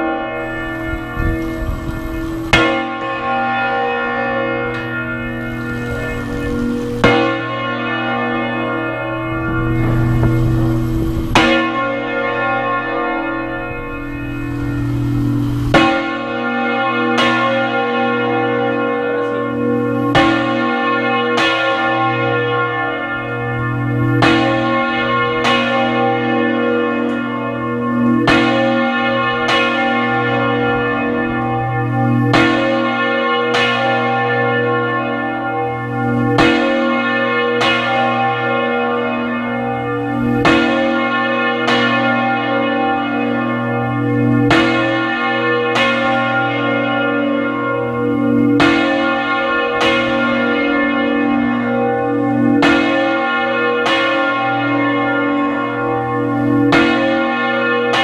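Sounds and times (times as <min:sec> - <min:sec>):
deep bell hum: 0:00.0 - 0:17.6
church bell clapper strikes: 0:00.0 - 0:58.0.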